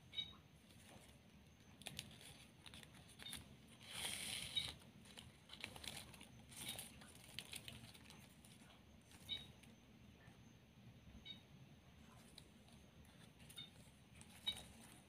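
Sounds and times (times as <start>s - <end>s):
ribbon rustling and crinkling: 0.7s - 9.3s.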